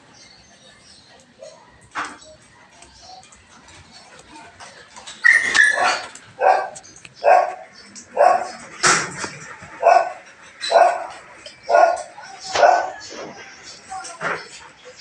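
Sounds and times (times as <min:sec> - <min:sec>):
dog barking: 0:05.3 - 0:07.6, 0:08.2 - 0:08.6, 0:09.8 - 0:13.0.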